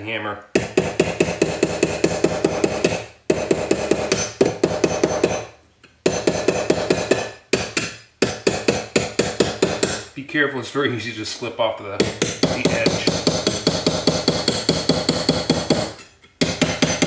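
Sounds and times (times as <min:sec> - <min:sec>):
hammer tapping on metal: 0:00.6 - 0:05.4, 0:06.0 - 0:10.0, 0:12.0 - 0:17.0.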